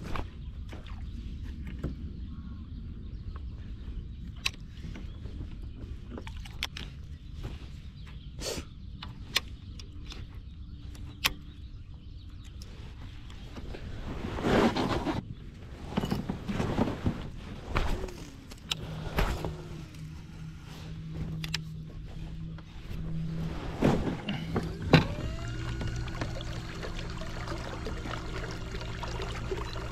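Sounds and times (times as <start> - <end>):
electric motor hum: 24.2 - 29.9.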